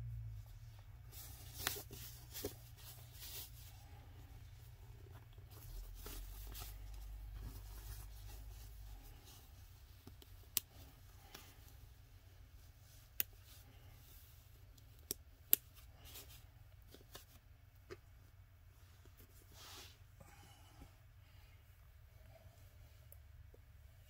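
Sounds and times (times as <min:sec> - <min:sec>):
cloth rustling: 0:00.7 - 0:14.6.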